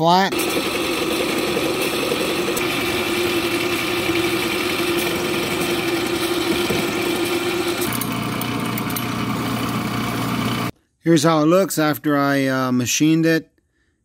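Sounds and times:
drill press drilling: 0.3 - 10.7
milling machine cutting metal: 0.3 - 10.7.

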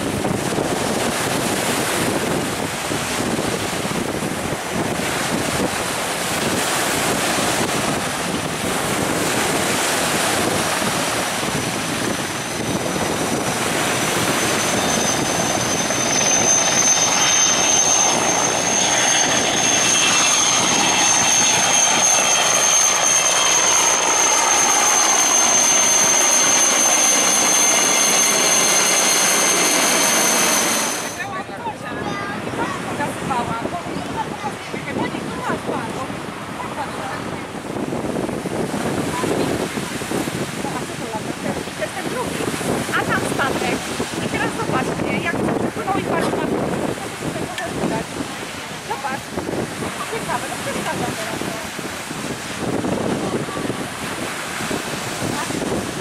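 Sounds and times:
helicopter rotor and turbine: 0.0 - 31.4, 38.2 - 56.0
high turbine whine: 0.0 - 31.6.

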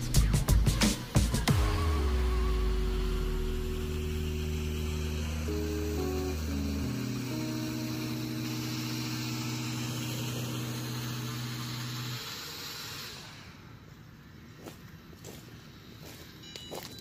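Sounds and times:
drone propellers whirring: 0.0 - 17.0
held guitar chord: 1.5 - 12.4.

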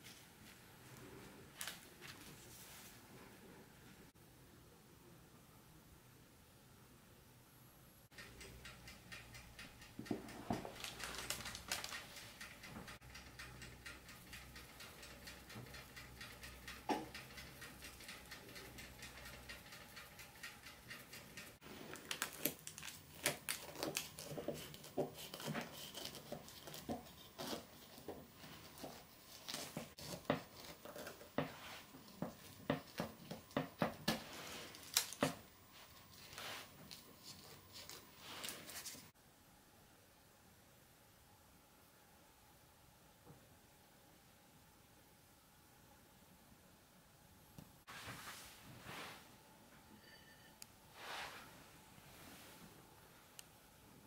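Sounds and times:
sparse clicks and rustles: 8.2 - 23.0
paper crinkling: 10.4 - 12.7, 21.6 - 31.3, 34.4 - 39.1.

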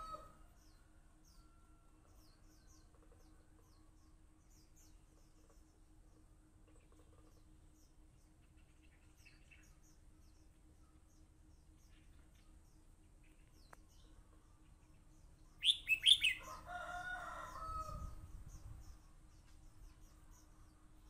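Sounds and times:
rooster crowing: 0.0 - 0.4, 16.1 - 18.2
bird chirping: 0.0 - 21.0.

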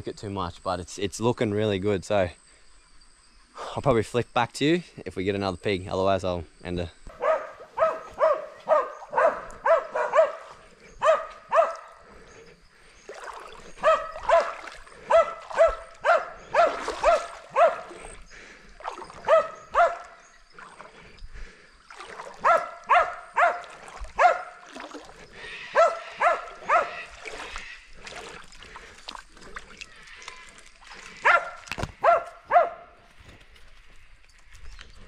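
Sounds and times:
dog barking: 7.1 - 12.0, 13.8 - 18.1, 19.2 - 20.2, 22.4 - 24.6, 25.7 - 27.0, 31.2 - 33.0.

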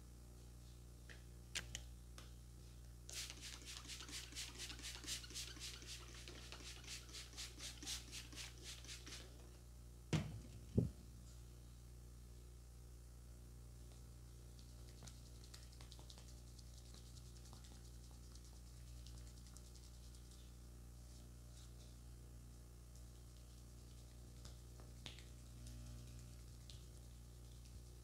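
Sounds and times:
spray bottle spritzing: 3.1 - 9.2.

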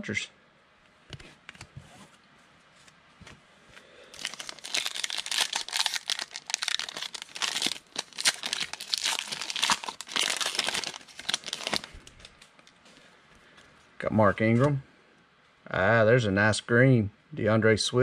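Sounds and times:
foil wrapper crinkling: 4.1 - 12.8.

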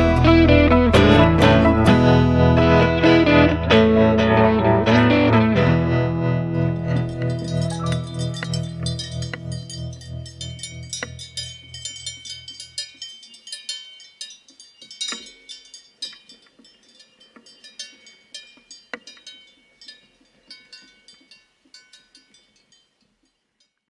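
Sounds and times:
guitar music: 0.0 - 11.4
cowbells clanking: 6.7 - 23.8.

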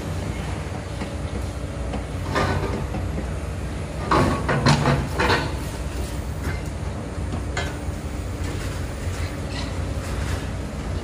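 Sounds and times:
excavator diesel engines rumbling: 0.0 - 11.0.

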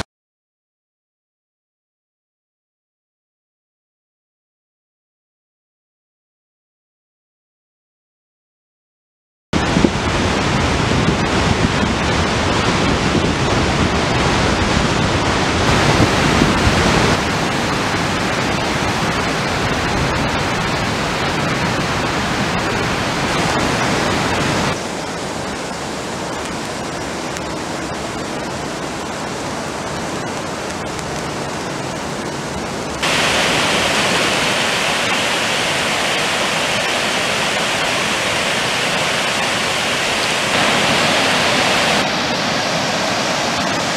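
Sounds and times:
heavy rain: 9.6 - 43.9
river water rushing: 9.6 - 43.9.

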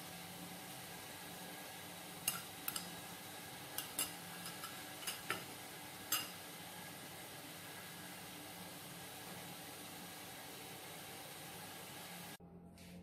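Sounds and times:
faint steady hiss: 0.0 - 12.4
metal spoon clinking on ceramic bowl: 6.1 - 6.4.

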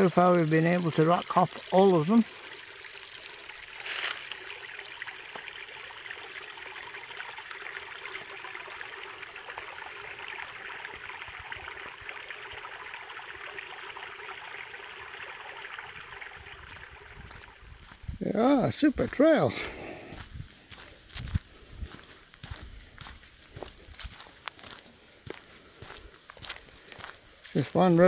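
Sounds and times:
river running over rocks: 3.8 - 4.5.

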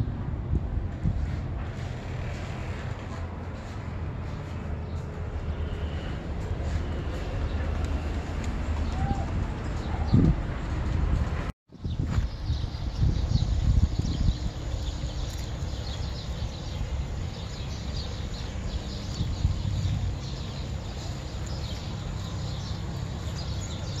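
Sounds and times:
small birds chirping: 11.8 - 24.0.

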